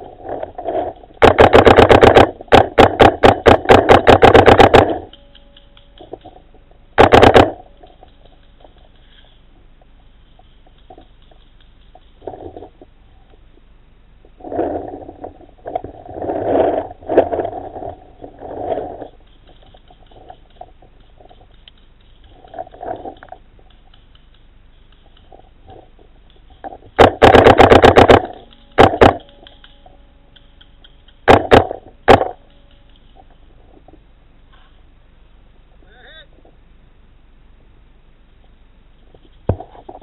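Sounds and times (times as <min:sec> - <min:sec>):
muffled scraping and rustling: 0:00.0 - 0:05.1, 0:06.0 - 0:23.9, 0:25.0 - 0:30.6, 0:31.2 - 0:34.9, 0:38.4 - 0:40.0
paintball marker firing: 0:01.2 - 0:06.4, 0:07.0 - 0:07.6, 0:27.0 - 0:33.1.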